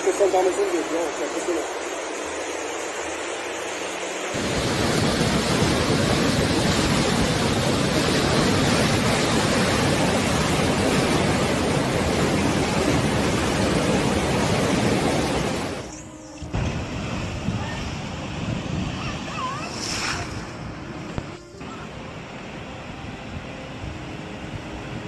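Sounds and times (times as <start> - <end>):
floodwater rushing down a street: 4.3 - 15.8.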